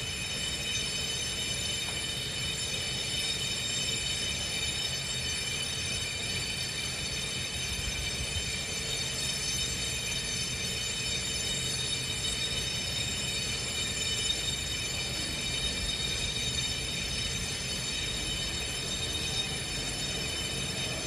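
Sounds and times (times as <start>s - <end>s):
high-pitched motor whine: 13.8s - 21.0s.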